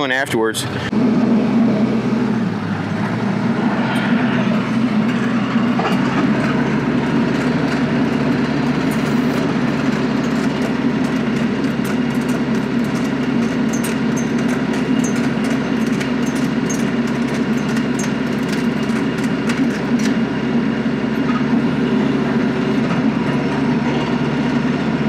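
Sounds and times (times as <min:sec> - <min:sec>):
tractor engine under load: 0:00.0 - 0:25.0
stump grinder cutting: 0:01.0 - 0:20.4.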